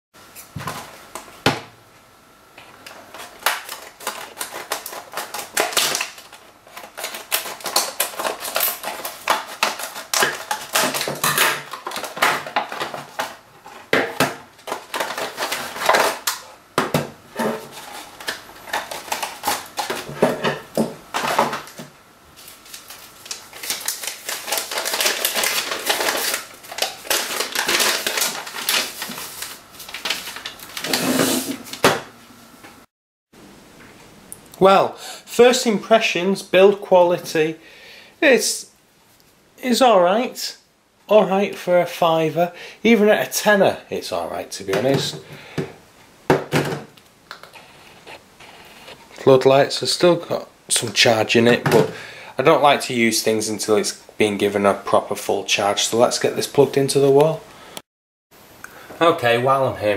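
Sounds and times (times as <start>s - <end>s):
hard plastic crackling and snapping: 2.7s - 17.1s, 17.7s - 21.9s, 22.6s - 31.0s
paper rustling: 3.0s - 14.0s, 22.4s - 31.9s
scissors cutting plastic packaging: 3.1s - 13.4s, 14.2s - 16.4s, 17.6s - 20.2s, 22.6s - 31.5s.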